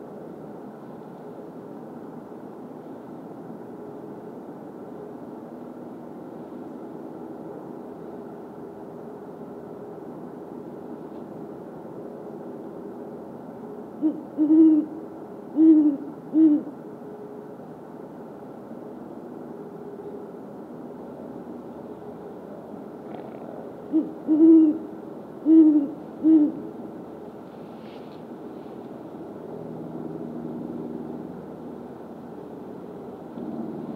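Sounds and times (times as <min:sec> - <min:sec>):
steady background hum: 0:00.0 - 0:33.9
owl deep hoots: 0:14.0 - 0:16.8, 0:23.1 - 0:26.8.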